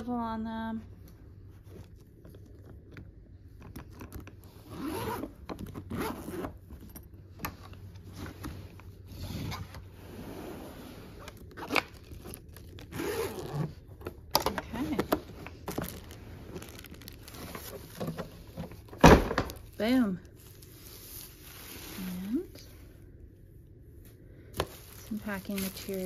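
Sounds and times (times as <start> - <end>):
zipper rasping: 3.8 - 6.9, 9.0 - 14.0.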